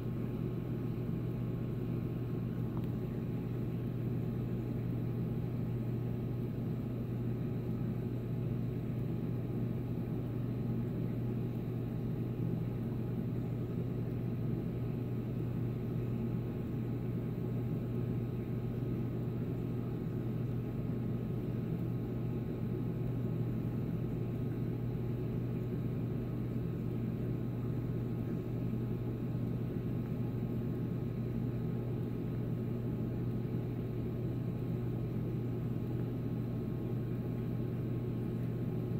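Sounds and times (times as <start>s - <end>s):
aquarium pumps humming: 0.0s - 38.9s.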